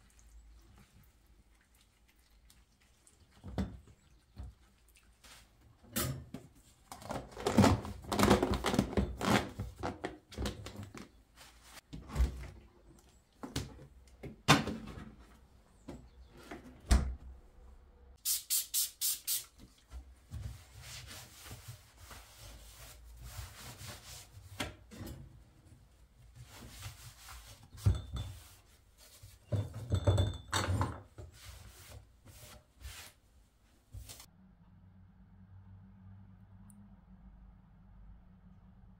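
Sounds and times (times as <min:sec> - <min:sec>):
trigger spray bottle squirting: 0:18.3 - 0:19.6
cloth wiping counter: 0:19.9 - 0:24.6, 0:26.3 - 0:29.4, 0:31.3 - 0:34.3.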